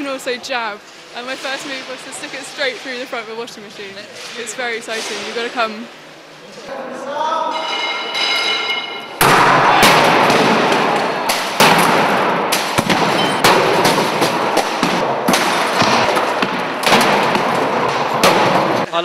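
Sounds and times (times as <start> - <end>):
loud metal bangs and crashes: 7.5 - 18.9.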